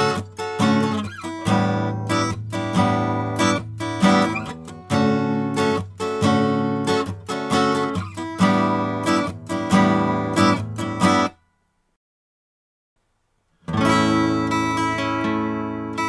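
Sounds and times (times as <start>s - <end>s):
strummed acoustic guitar: 0.0s - 11.4s, 13.6s - 16.0s.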